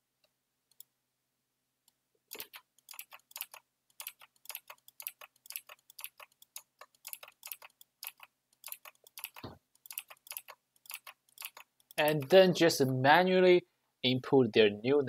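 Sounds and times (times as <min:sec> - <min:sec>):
computer keyboard typing: 0:02.3 - 0:12.4.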